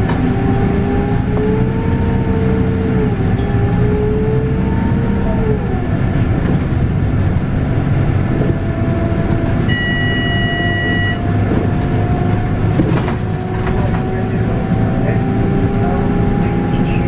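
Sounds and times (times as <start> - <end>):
bus diesel engine running: 0.0 - 17.0
gearbox whine: 8.2 - 17.0
steady electronic beep: 9.7 - 11.3.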